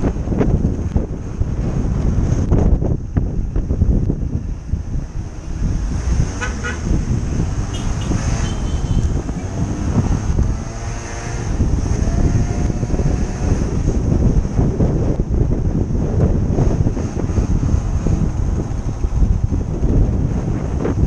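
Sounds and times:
wind buffeting microphone: 0.0s - 21.0s
short high horn toots: 7.7s - 9.2s.

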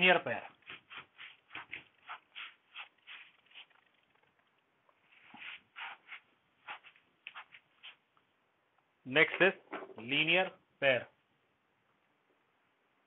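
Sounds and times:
duster scrubbing whiteboard: 0.5s - 4.1s, 5.1s - 8.0s.

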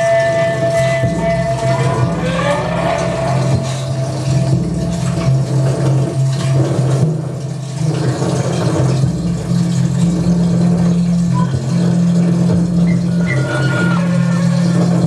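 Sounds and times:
electronic drone tones: 0.0s - 8.0s
grainy noise texture: 0.0s - 15.0s.

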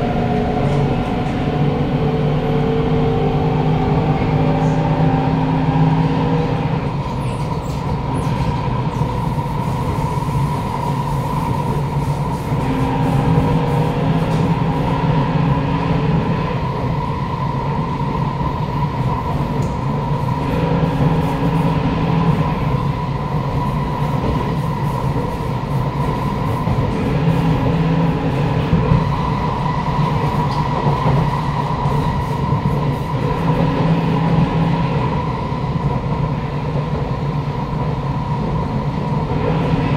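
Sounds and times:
train motor drone and whine: 0.0s - 9.0s, 9.9s - 17.5s, 19.2s - 35.8s, 39.0s - 39.9s
wheels rumbling on rail: 0.0s - 39.9s.

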